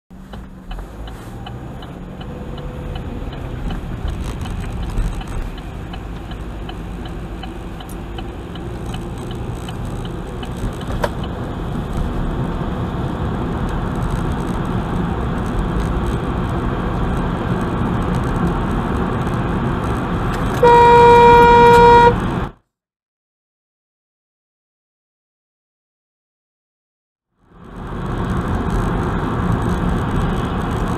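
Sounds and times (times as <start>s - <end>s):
road and tyre noise: 0.1s - 22.6s, 27.3s - 30.9s
light regular ticking: 0.2s - 20.6s
car horn: 20.5s - 22.3s.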